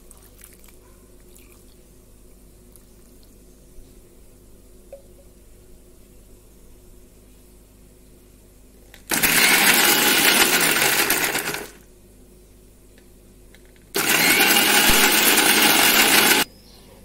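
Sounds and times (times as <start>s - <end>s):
electric mixer grinder running: 9.1s - 11.8s, 14.0s - 16.5s.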